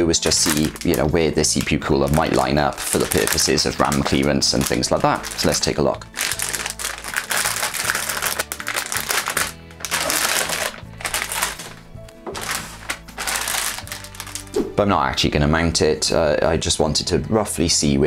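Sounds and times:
background music: 0.0 - 18.0
plastic bag crinkling: 0.2 - 14.6.

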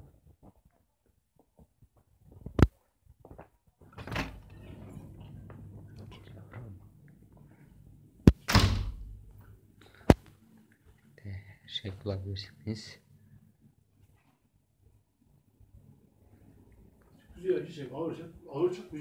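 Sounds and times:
faint low hum: 3.7 - 19.0
door shutting with a thud: 8.3 - 9.2.

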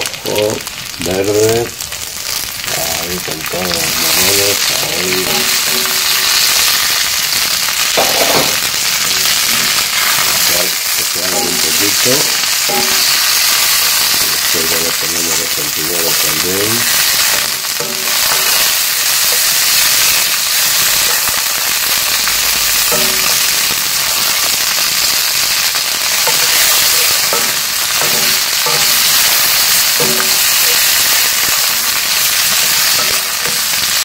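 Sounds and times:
vegetables sizzling in oil: 0.0 - 34.0.

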